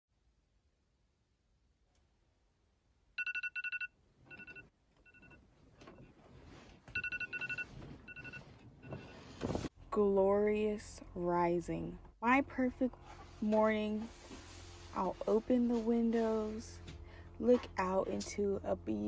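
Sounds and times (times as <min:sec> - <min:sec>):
electronic alarm beeping: 0:03.2 - 0:06.1, 0:06.9 - 0:09.3
bedding rustling: 0:05.4 - 0:09.7.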